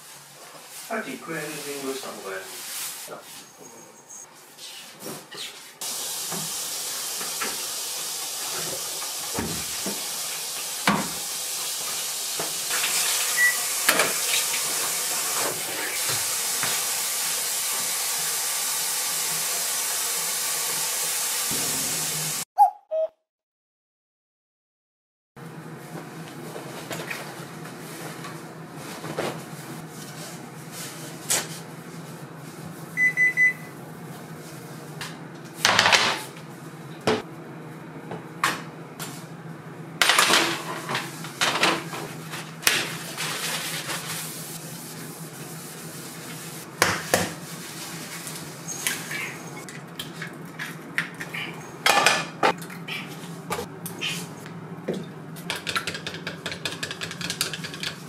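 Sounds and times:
dishes and utensils clattering: 54.9s - 58.0s.

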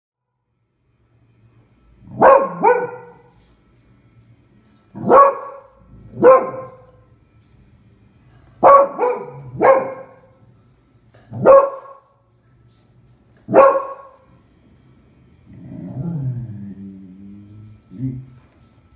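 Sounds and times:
dog barking: 2.1s - 3.3s, 5.0s - 6.9s, 8.6s - 10.3s, 11.3s - 12.1s, 13.5s - 14.2s.

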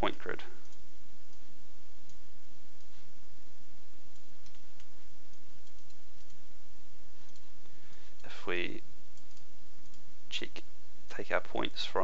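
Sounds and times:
recording hiss and low hum: 0.0s - 12.0s
faint computer mouse clicks: 4.1s - 6.4s, 7.2s - 8.3s, 9.2s - 10.0s.

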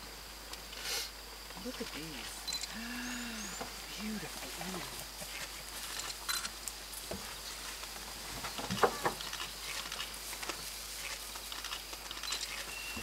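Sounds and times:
faint high insect drone: 0.0s - 13.0s
soft clicks and rustles: 3.6s - 12.8s.

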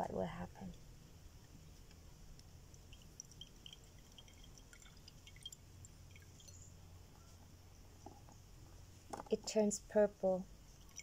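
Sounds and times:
juice dripping into glass: 2.3s - 7.0s, 10.7s - 11.0s.

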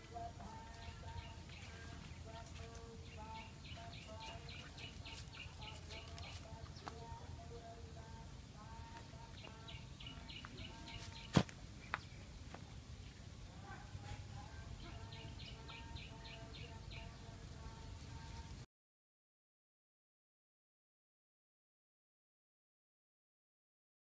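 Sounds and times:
birds chirping: 0.0s - 18.6s.

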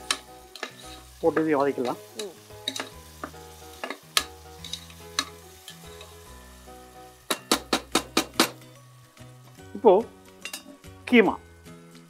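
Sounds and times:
metal spatula scraping a pot: 0.1s - 1.2s, 1.8s - 6.2s, 10.4s - 10.8s.

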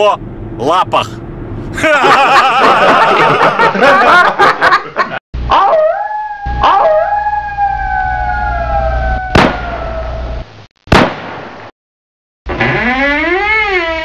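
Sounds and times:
wailing tone sliding downward: 5.5s - 10.4s
wavering wail: 5.5s - 10.4s
sharp bangs: 9.3s - 9.7s, 10.9s - 11.7s.

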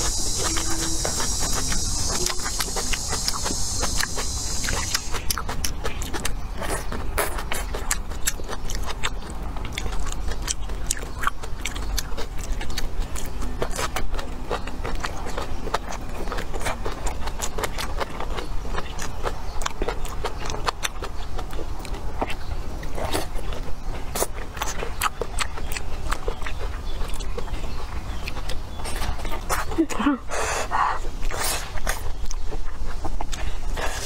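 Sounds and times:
high insect drone: 0.0s - 5.4s
crunching raw vegetables: 0.0s - 30.2s.

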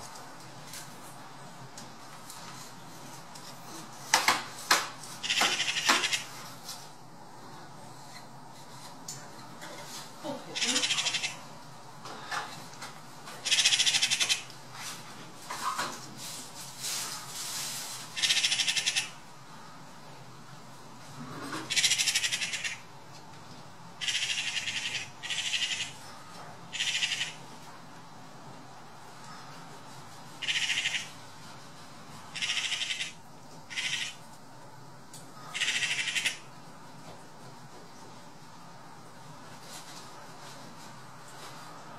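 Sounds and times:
magpie rattling chatter: 5.2s - 6.3s, 10.6s - 11.5s, 13.4s - 14.5s, 18.2s - 19.2s, 21.7s - 22.9s, 24.0s - 26.0s, 26.7s - 27.4s, 30.4s - 31.2s, 32.3s - 34.2s, 35.5s - 36.5s.

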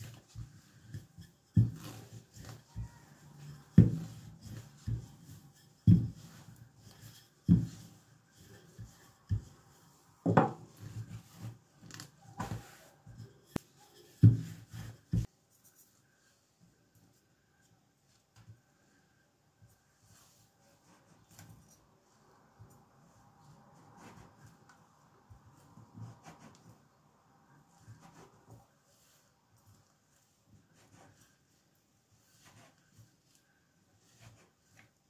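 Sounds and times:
rolling pin knocking on surface: 1.6s - 6.4s, 10.2s - 10.7s, 14.2s - 15.3s.

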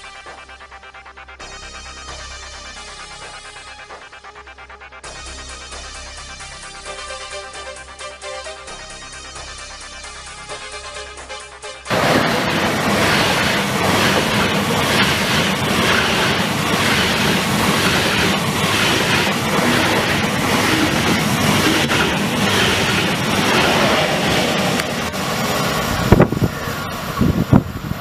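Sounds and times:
high-speed train passing: 11.9s - 28.0s.

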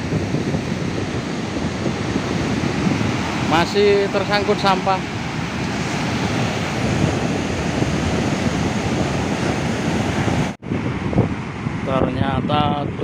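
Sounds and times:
ocean surf breaking: 0.0s - 12.1s
wind buffeting microphone: 0.0s - 13.0s.

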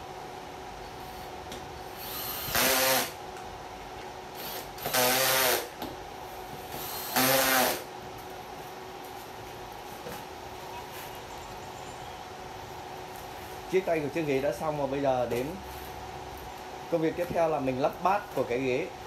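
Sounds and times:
cordless drill running: 2.0s - 3.2s, 4.4s - 5.7s, 6.8s - 7.9s.

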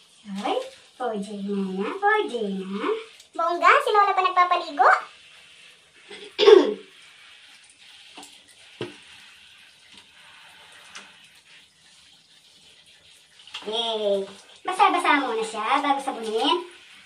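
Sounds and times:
running water hiss: 0.0s - 17.0s
person coughing: 6.2s - 6.8s.

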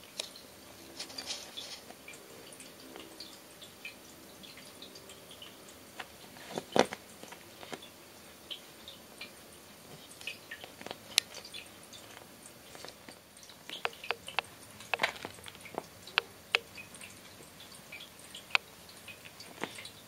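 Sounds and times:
kitten chewing cloth: 9.8s - 17.7s.

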